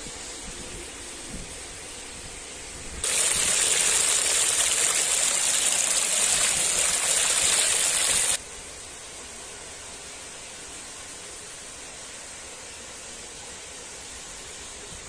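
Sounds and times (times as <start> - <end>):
water rushing over concrete edge: 3.0 - 8.4.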